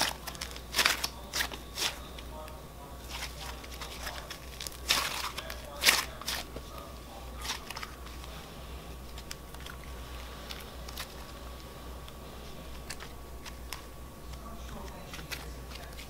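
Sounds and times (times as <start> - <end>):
slime crackling and popping: 0.0 - 2.0, 3.1 - 6.7.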